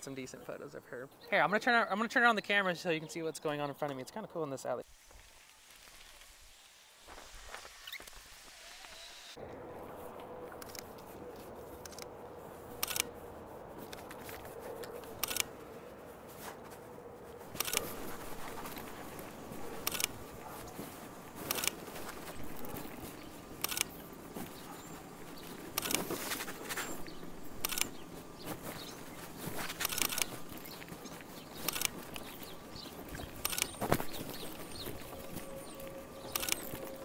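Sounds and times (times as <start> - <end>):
camera shutter clicks: 12.8 - 13.1, 15.2 - 15.5, 17.6 - 17.8, 19.9 - 20.1, 21.5 - 21.8, 23.6 - 23.9, 25.8 - 26.1, 27.6 - 27.9, 29.8 - 30.3, 31.7 - 32.0, 33.4 - 33.8, 36.3 - 36.8.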